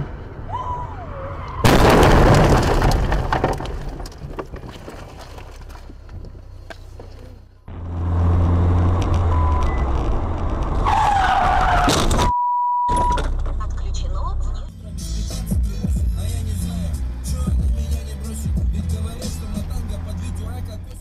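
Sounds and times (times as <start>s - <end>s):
car crash impact: 1.6s - 6.0s
scraping and rattling: 2.0s - 7.4s
car driving on road: 3.4s - 12.3s, 13.0s - 21.0s.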